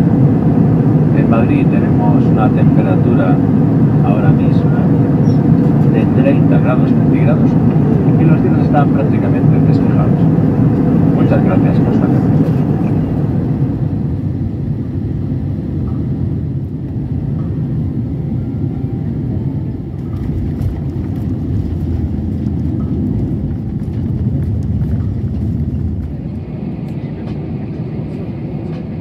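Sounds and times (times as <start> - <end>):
airliner cabin engine rumble: 0.0 - 29.0.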